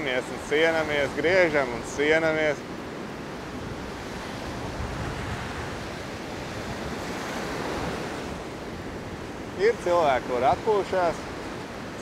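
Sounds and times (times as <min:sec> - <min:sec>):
rough sea surf: 0:00.0 - 0:12.0
wind buffeting microphone: 0:02.7 - 0:12.0.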